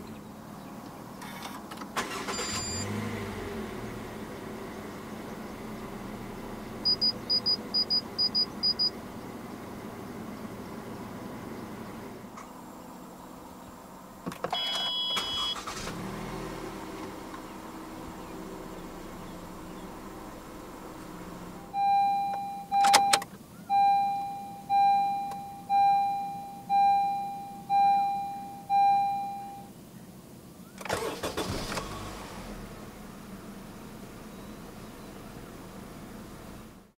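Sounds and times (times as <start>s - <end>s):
car engine cranking and idling: 0.0s - 36.9s
dashboard warning chime: 2.0s - 2.9s, 6.8s - 8.9s, 14.5s - 15.7s, 21.7s - 29.7s
beep: 2.4s - 2.8s, 6.9s - 8.9s, 14.5s - 15.6s, 21.8s - 29.7s.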